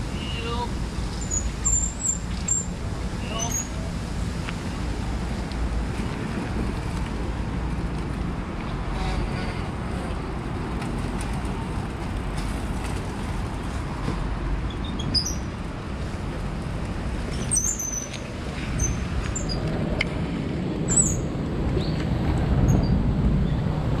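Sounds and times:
low outdoor rumble: 0.0 - 24.0
birds chirping: 0.2 - 3.7.

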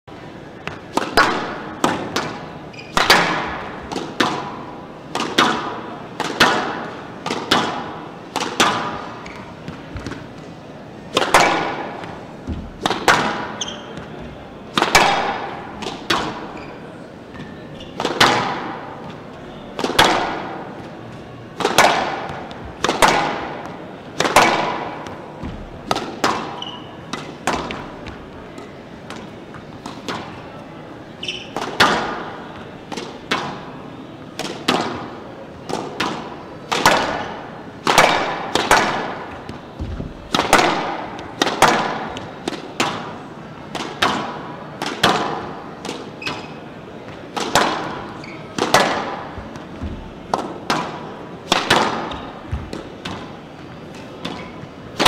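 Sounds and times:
squash ball cracks: 0.6 - 10.5, 11.1 - 14.1, 14.7 - 16.6, 18.0 - 30.4, 31.4 - 33.7, 34.3 - 46.5, 47.1 - 54.4.

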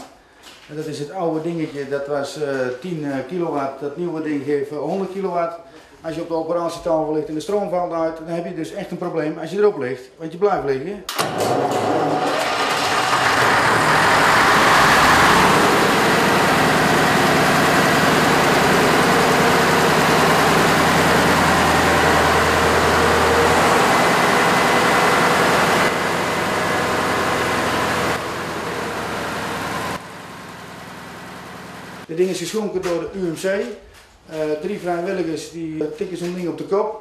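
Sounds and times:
generator engine running: 11.1 - 32.1.

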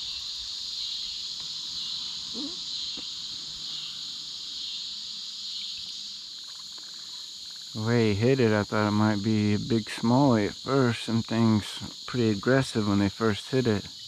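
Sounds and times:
insects buzzing: 0.0 - 14.0.

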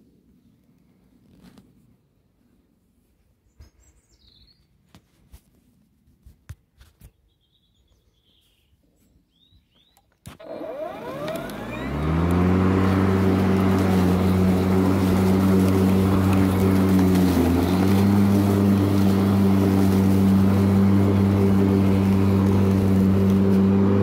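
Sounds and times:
small clicks: 9.9 - 12.4
electric lawn mower running: 10.3 - 24.0.

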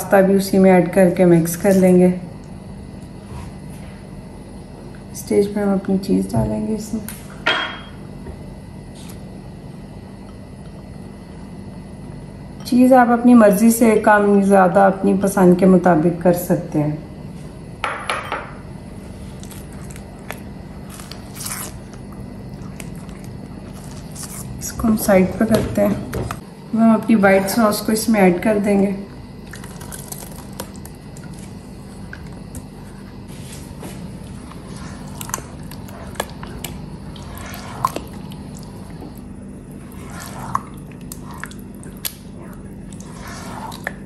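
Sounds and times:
steady low hum: 0.0 - 44.0
spatula stirring wet sauce: 29.6 - 39.2, 39.8 - 44.0
spatula scraping pan: 34.3 - 38.1, 39.8 - 40.7, 43.0 - 44.0.

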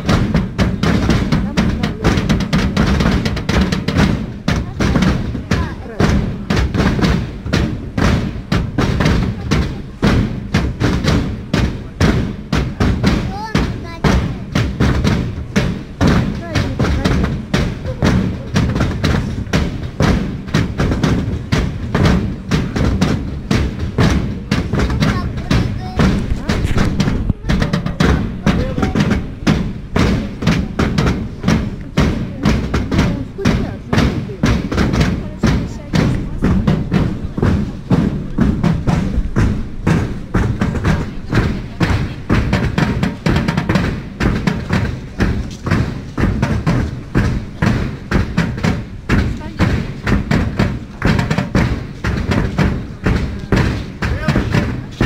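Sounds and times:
drums playing loud beat: 0.0 - 55.0
heavy rhythmic percussion thumps: 0.0 - 55.0.

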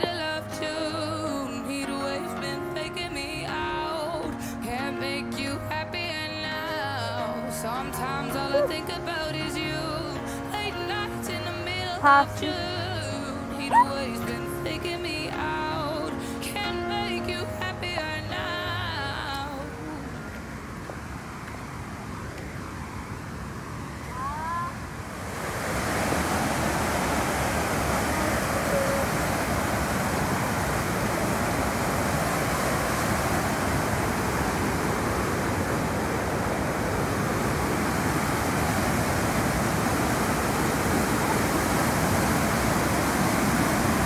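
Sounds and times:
waterfall rushing: 15.4 - 44.0.

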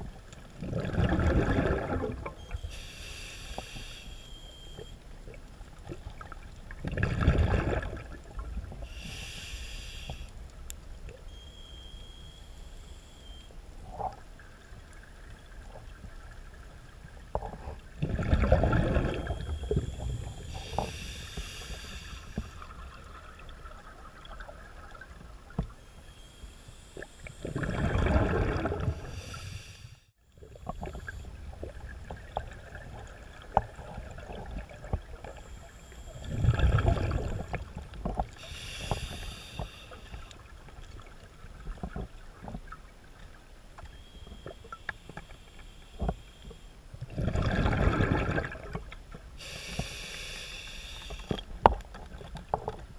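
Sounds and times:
exhaled bubbles underwater: 0.0 - 3.2, 4.8 - 9.2, 17.2 - 25.7, 27.1 - 29.6, 30.4 - 42.8, 47.0 - 50.0
hissing regulator inhalation: 2.6 - 4.8, 8.9 - 10.3, 19.7 - 22.7, 28.8 - 30.1, 38.4 - 40.4, 49.4 - 51.4.

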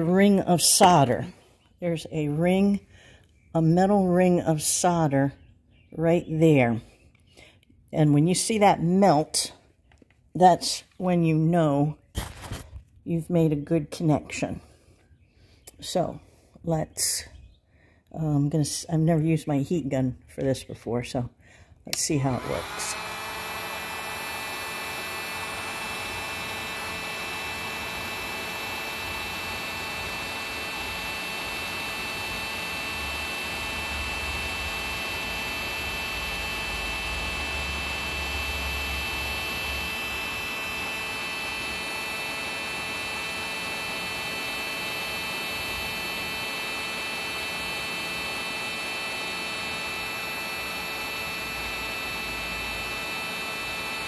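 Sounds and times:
heat gun fan hum with whine: 0.0 - 5.4, 21.3 - 54.0.

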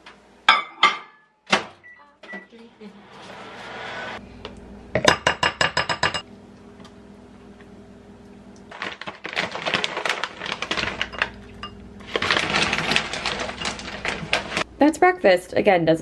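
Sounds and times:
plastic pouch crinkling: 8.7 - 14.6.

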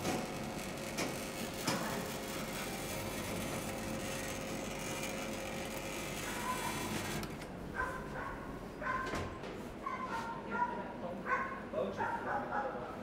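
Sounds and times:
dough sheeter running: 0.0 - 9.0.

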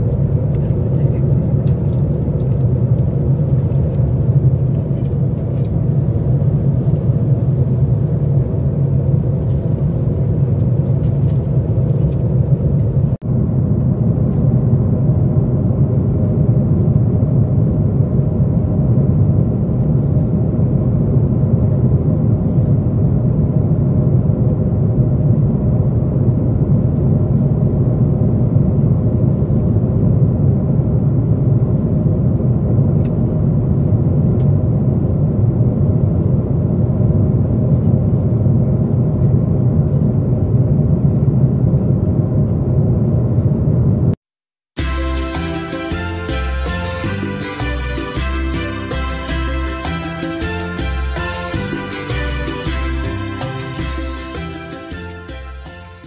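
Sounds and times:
airliner cabin rumble: 0.0 - 44.2.

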